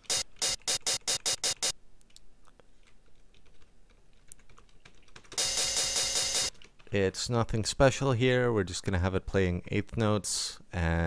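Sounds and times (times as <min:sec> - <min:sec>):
keyboard keys clicking: 0:02.8 - 0:06.9.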